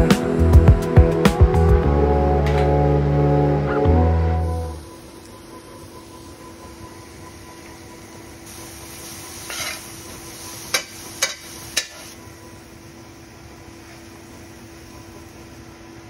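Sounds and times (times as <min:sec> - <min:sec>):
vegetables sizzling in frying pan: 0:07.0 - 0:12.7, 0:13.3 - 0:15.8.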